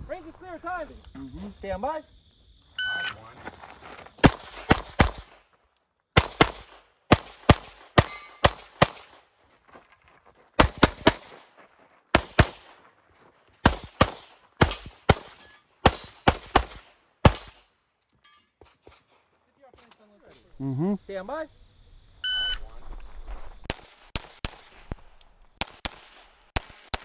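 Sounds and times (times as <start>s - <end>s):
pistol shots: 4.2s - 5.4s, 6.2s - 9.3s, 10.6s - 11.4s, 12.1s - 12.8s, 13.6s - 17.7s, 23.7s - 27.0s.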